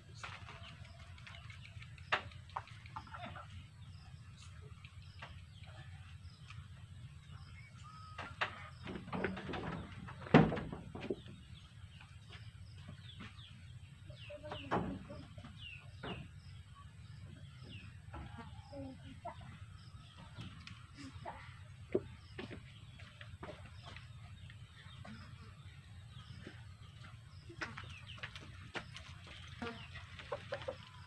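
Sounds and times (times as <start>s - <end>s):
low background rumble: 0.0s - 31.0s
chickens clucking: 0.2s - 6.1s, 14.1s - 31.0s.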